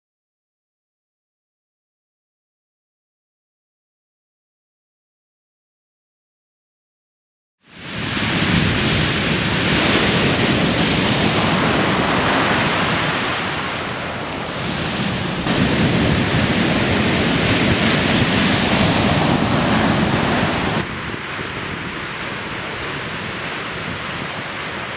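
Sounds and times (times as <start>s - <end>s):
surf breaking on shingle beach: 7.8s - 24.9s.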